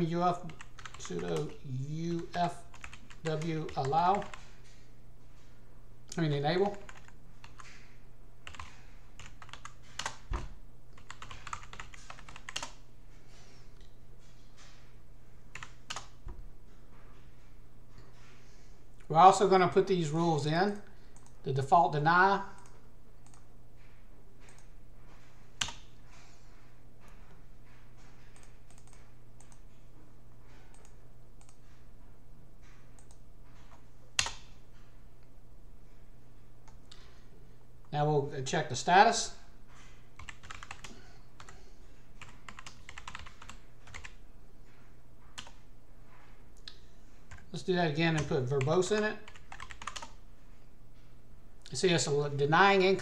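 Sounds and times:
keyboard typing clicks: 0:02.7 - 0:04.5, 0:08.4 - 0:12.8, 0:25.6 - 0:25.9, 0:28.3 - 0:29.6, 0:33.0 - 0:34.5, 0:40.2 - 0:41.6, 0:42.2 - 0:44.2, 0:48.2 - 0:50.2
keyboard keystrokes: 0:40.2 - 0:41.6, 0:42.2 - 0:44.1, 0:49.3 - 0:50.1.

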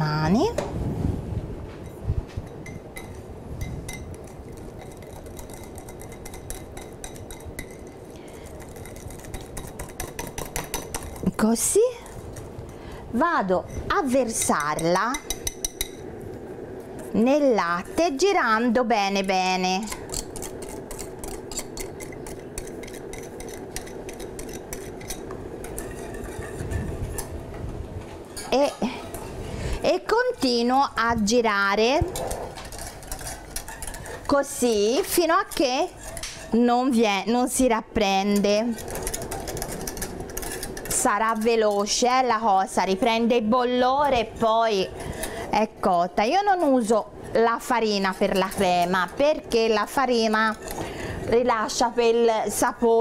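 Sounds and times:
whisk clicking against glass bowl: 0:02.6 - 0:07.9.

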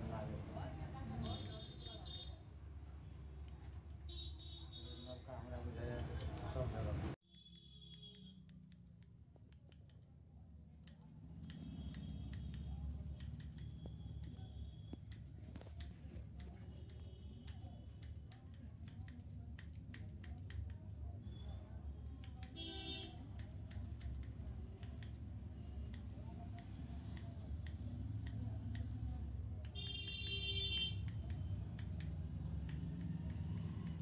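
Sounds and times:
scissors snipping hair: 0:01.0 - 0:02.3, 0:05.9 - 0:06.6, 0:07.3 - 0:10.2, 0:10.8 - 0:20.9, 0:22.1 - 0:25.3, 0:25.9 - 0:29.9, 0:30.8 - 0:34.0.

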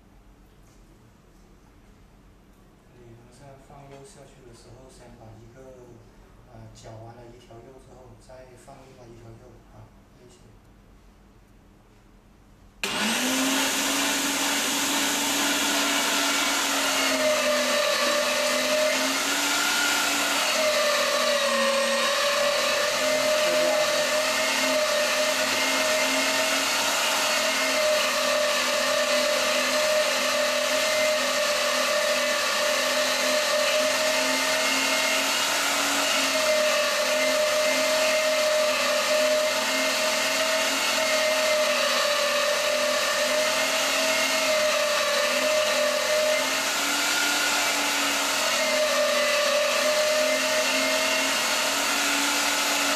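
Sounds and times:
electric meat grinder whining: 0:12.8 - 0:52.9.

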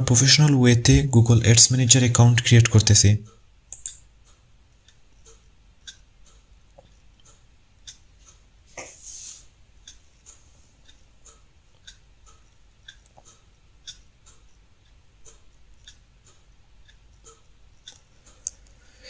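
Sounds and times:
clock ticking: 0:00.0 - 0:08.6, 0:09.7 - 0:18.9
short hiss: 0:08.8 - 0:09.5.

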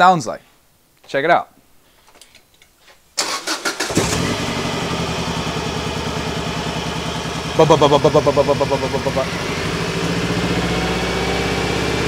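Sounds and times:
engine starter cranking: 0:03.2 - 0:05.0
car engine idling with misfire: 0:03.8 - 0:12.0.

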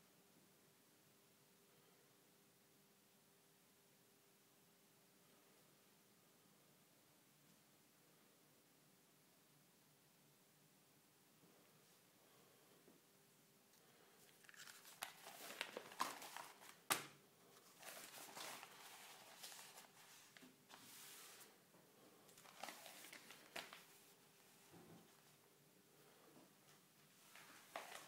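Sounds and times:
newspaper rustling: 0:14.3 - 0:21.6, 0:22.3 - 0:24.6, 0:27.2 - 0:28.0.

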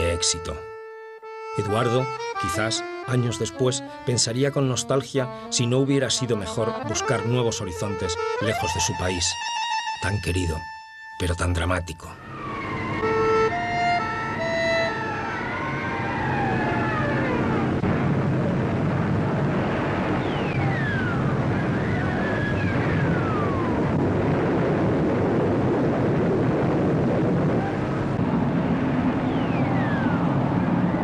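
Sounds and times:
siren wail gliding down: 0:12.0 - 0:31.0
dense low rumble: 0:12.5 - 0:31.0
falling bomb whistles: 0:20.1 - 0:23.8, 0:29.1 - 0:31.0.

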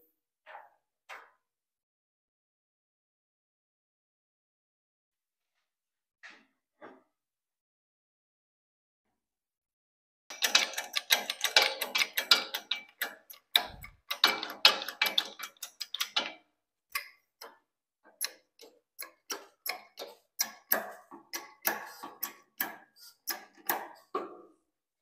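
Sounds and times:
rapid metallic clicks: 0:10.3 - 0:17.1.

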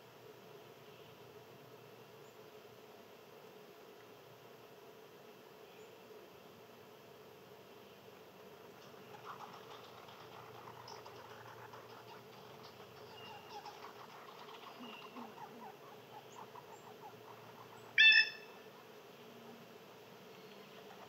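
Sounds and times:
faint outdoor hush: 0:00.0 - 0:21.0
faint chirps: 0:08.8 - 0:19.7, 0:20.3 - 0:21.0
loud pitched animal call: 0:10.7 - 0:19.6.

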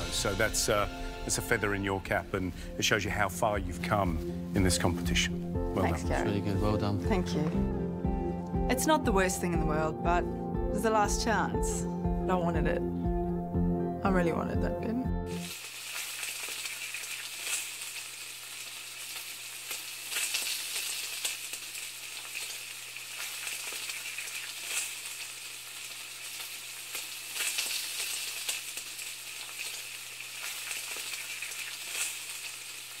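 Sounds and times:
sizzling hiss with pops: 0:00.0 - 0:03.0, 0:15.3 - 0:33.0.

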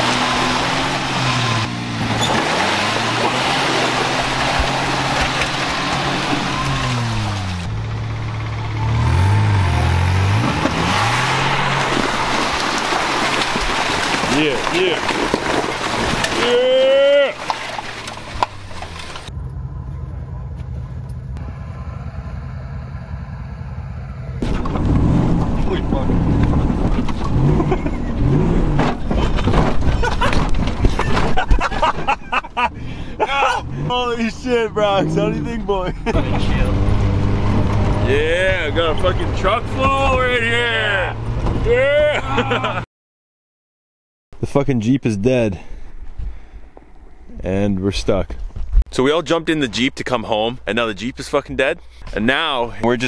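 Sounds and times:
pickup truck engines revving: 0:00.0 - 0:42.8
knocks and rattles: 0:10.5 - 0:16.6, 0:17.4 - 0:19.4, 0:24.4 - 0:32.5.

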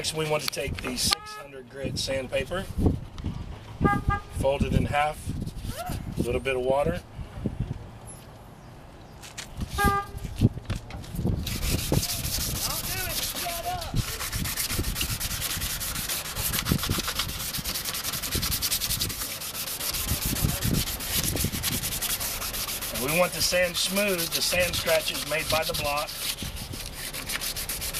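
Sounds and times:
sandpaper scratching on plastic: 0:05.3 - 0:05.8, 0:11.1 - 0:27.9.

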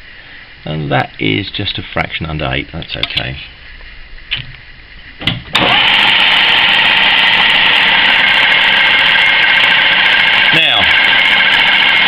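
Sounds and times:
lathe motor running: 0:05.5 - 0:12.0.

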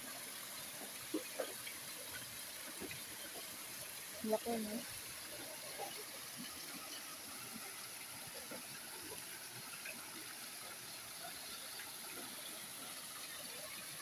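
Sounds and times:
running water rushing: 0:00.0 - 0:14.0.

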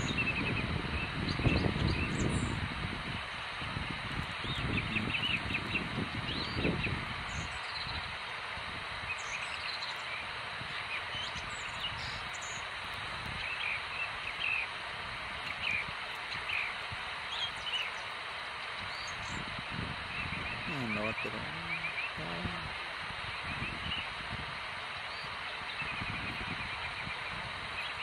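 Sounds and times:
small birds chirping: 0:00.0 - 0:28.0
steady background hiss: 0:00.0 - 0:28.0.

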